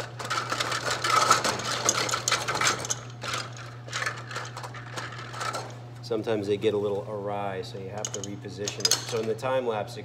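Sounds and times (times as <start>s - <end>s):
metal plungers clicking and rattling: 0.0s - 5.7s, 8.0s - 9.4s
steady low hum: 0.0s - 10.0s.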